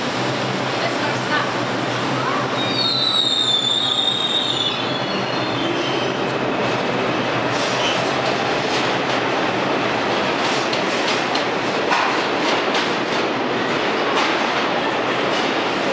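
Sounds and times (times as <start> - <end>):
train rumble: 0.0 - 15.9
train wheel squeal: 2.4 - 6.2, 7.5 - 8.1.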